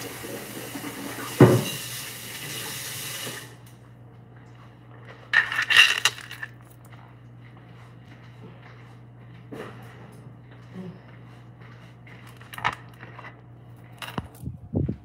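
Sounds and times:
kitchen tap running: 0.0 - 3.7
rustling and scraping at cutting board: 11.1 - 14.4.

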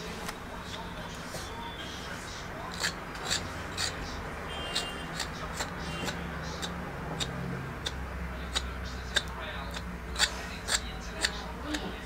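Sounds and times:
metal peeler scraping pod: 2.7 - 12.0.

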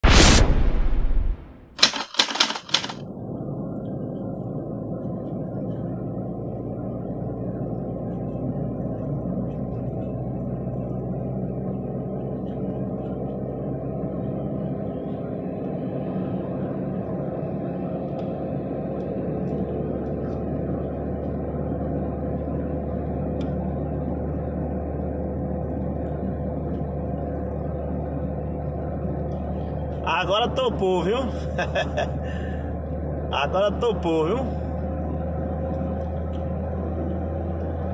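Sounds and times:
brief burst of noise: 0.0 - 2.5
car engine and road rumble: 0.0 - 37.9.

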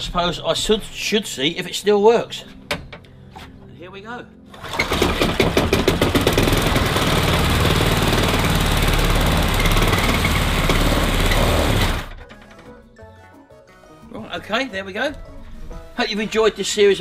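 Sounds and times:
lawnmower engine running: 4.5 - 12.2.

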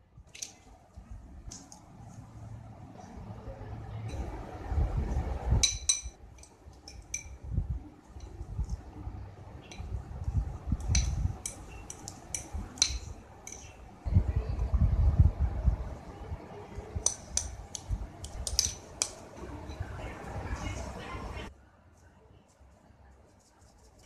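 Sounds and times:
fork clinking against ceramic bowl: 5.6 - 7.4, 10.8 - 13.7.

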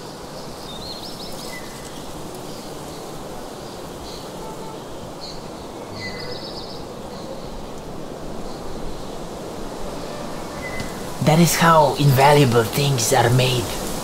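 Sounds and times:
small birds chirping: 0.0 - 14.0
steady rushing hiss: 0.0 - 14.0.

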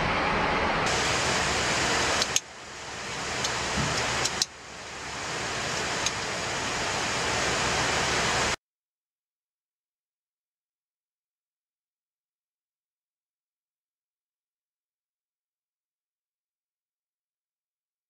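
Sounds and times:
airflow rushing in cockpit: 0.0 - 8.6
click: 2.2 - 2.4, 3.4 - 4.5, 6.0 - 6.3.

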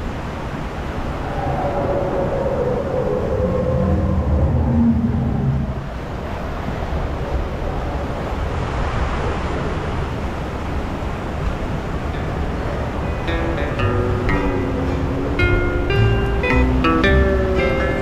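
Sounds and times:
rushing water: 0.0 - 18.0
low hum: 2.6 - 6.2, 12.9 - 18.0
raft rumble: 2.6 - 6.4, 12.6 - 18.0.

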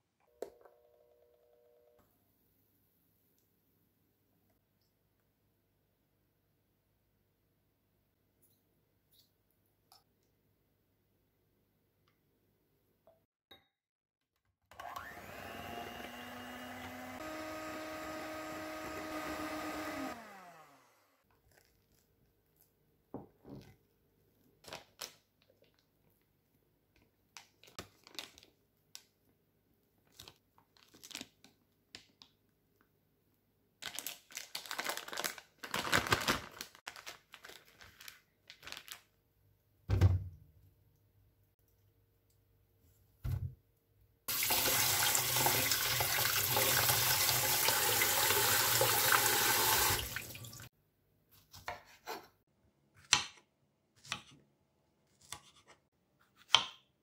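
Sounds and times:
electric hand mixer whipping: 14.8 - 21.2
plastic piping bag crinkling: 27.4 - 28.6, 30.0 - 32.3, 33.8 - 39.2
thump: 39.9 - 40.3.

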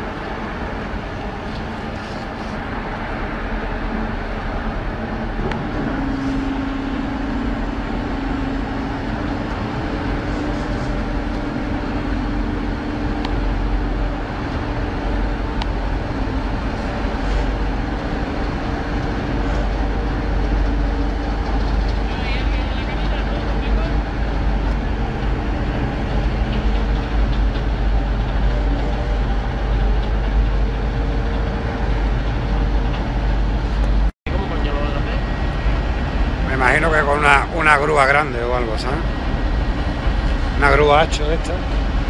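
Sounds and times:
ferry engine rumble: 0.0 - 42.0
steady hum: 0.0 - 42.0.

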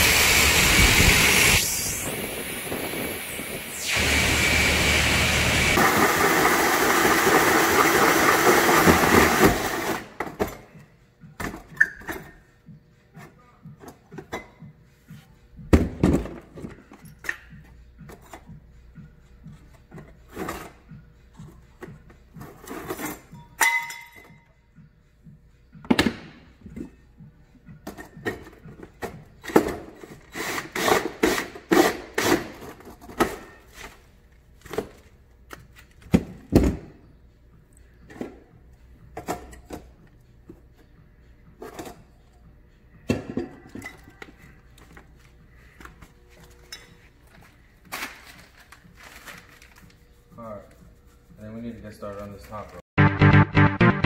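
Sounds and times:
power tool running: 3.7 - 10.0.

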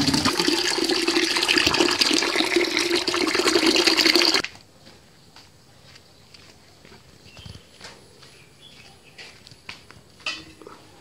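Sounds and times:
water pouring into plastic bucket: 0.0 - 4.4.

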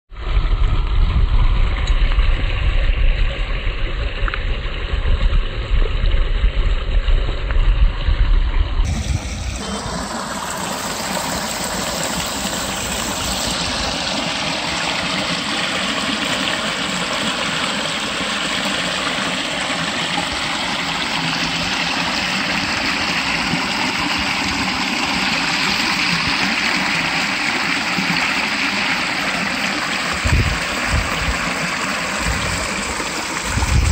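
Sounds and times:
low rumble: 0.1 - 10.2
water rushing over weir: 8.5 - 33.9.

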